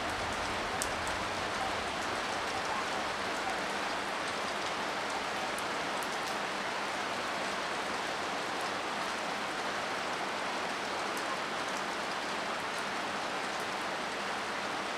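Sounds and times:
rain splashing on paved ground: 0.0s - 14.9s.

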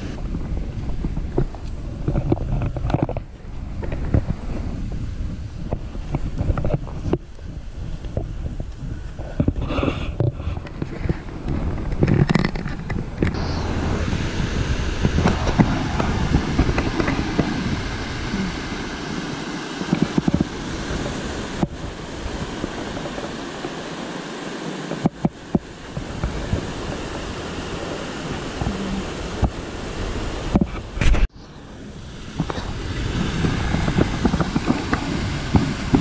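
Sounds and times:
wind buffeting microphone: 0.0s - 24.2s, 25.2s - 36.0s
water rushing over rocks: 12.0s - 31.0s, 31.9s - 36.0s.

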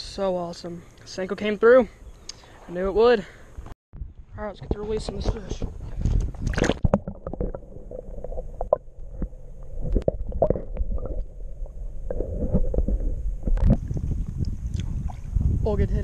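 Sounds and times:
underwater rumble and gurgling: 4.0s - 16.0s.

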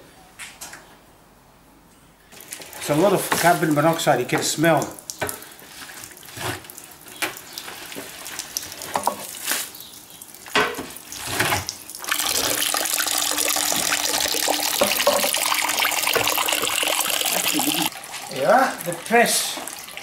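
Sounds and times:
wet grape skins scraped in metal drum: 2.4s - 4.6s, 5.4s - 8.4s
wine splashing into metal pot: 10.6s - 19.0s.

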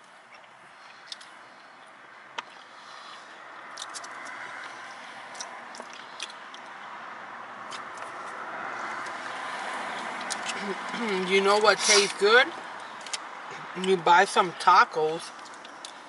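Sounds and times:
person chewing: 0.3s - 1.4s, 2.4s - 6.8s, 9.9s - 11.2s.

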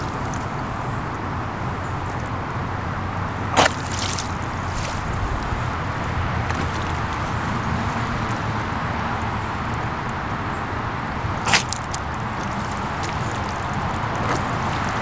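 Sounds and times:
mud squelching and sloshing: 0.0s - 1.1s, 3.4s - 8.7s, 11.2s - 15.0s.

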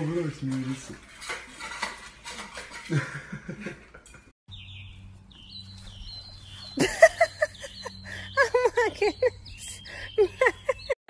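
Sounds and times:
metal bowl clinking on tile: 0.6s - 4.2s
birds chirping: 4.5s - 11.0s.

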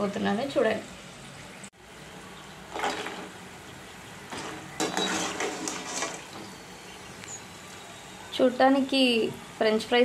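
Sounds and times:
fries sizzling in hot oil: 0.0s - 10.0s
metal skimmer scraping pan: 2.7s - 3.4s, 4.3s - 6.7s.

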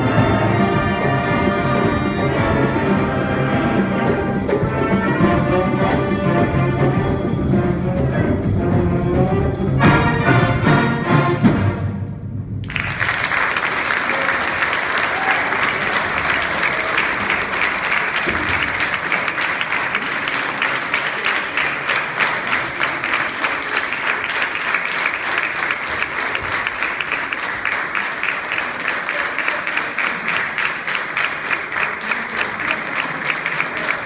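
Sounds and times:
audience applauding: 12.6s - 34.0s.

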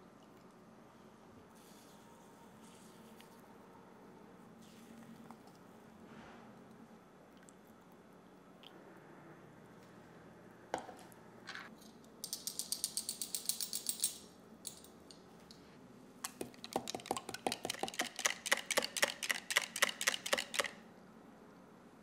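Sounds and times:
whisk clicking against glass: 16.2s - 20.8s.

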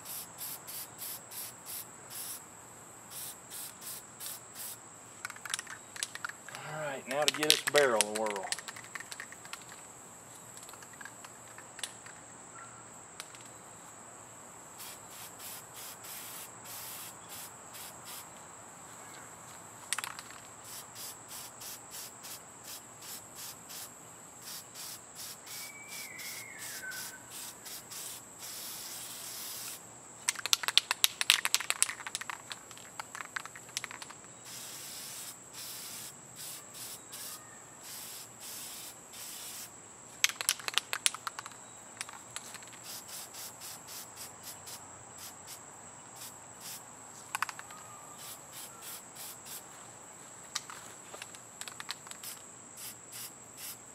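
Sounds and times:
aerosol spray can hissing: 0.0s - 2.4s, 3.1s - 4.8s, 14.8s - 18.2s, 20.6s - 29.8s, 34.4s - 39.7s, 42.4s - 45.6s, 46.2s - 46.8s, 48.2s - 49.6s, 52.1s - 53.8s
insects chirping: 0.0s - 53.9s
spray can rattling when shaken: 3.1s - 9.8s, 14.8s - 18.2s, 19.9s - 45.3s, 46.2s - 49.6s, 50.6s - 53.8s
bird call: 25.5s - 27.3s, 47.4s - 49.0s.

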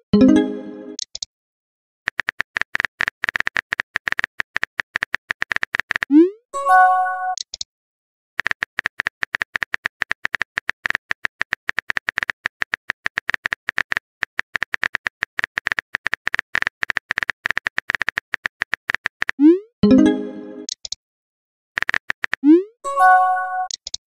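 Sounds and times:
keyboard typing clicks: 2.1s - 6.2s, 7.3s - 7.7s, 8.4s - 21.0s, 21.8s - 22.6s, 23.6s - 24.0s.

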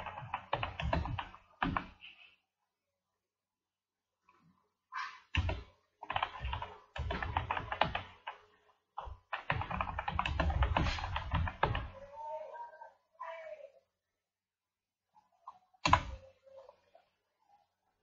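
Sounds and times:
computer keyboard typing: 0.0s - 2.0s, 5.4s - 12.0s.

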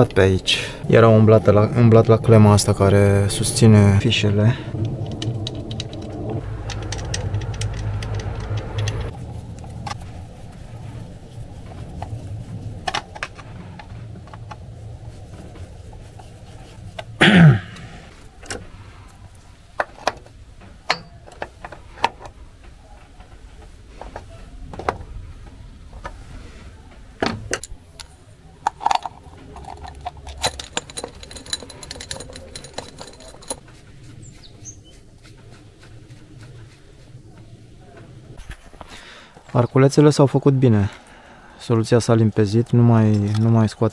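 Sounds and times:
low hum: 0.0s - 39.9s
metal parts clinking: 4.8s - 9.1s, 20.8s - 22.3s, 27.5s - 33.6s.

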